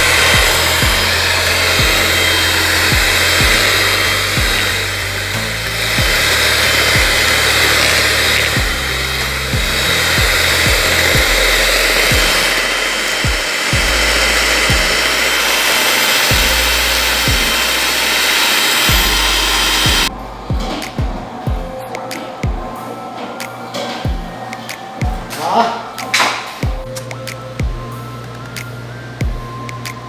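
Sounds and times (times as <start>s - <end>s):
electric hand mixer running: 0.0s - 21.7s.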